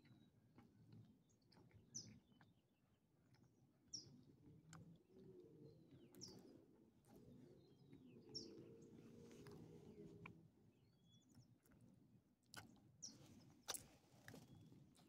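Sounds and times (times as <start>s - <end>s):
bird chirping: 5.6s - 10.1s, 10.7s - 11.7s.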